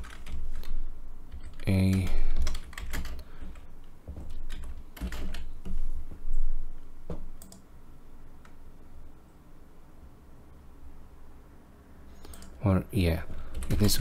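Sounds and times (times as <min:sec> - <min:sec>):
typing on computer keyboard: 0:00.0 - 0:05.8, 0:07.4 - 0:07.6, 0:12.2 - 0:12.6, 0:13.3 - 0:14.0.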